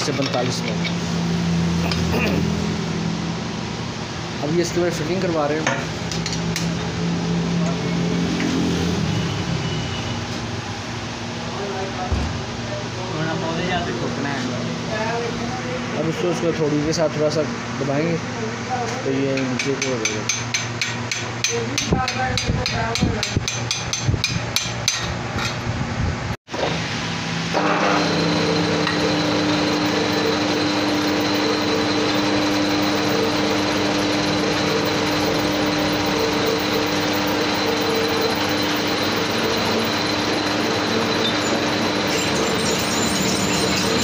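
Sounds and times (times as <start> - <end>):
metal lathe humming: 27.5 - 44.0.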